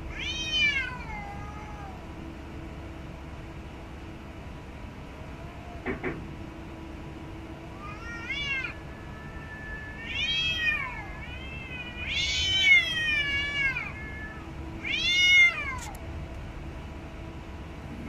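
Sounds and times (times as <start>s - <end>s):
cats yowling: 0.0s - 2.2s, 5.2s - 6.0s, 7.6s - 16.0s.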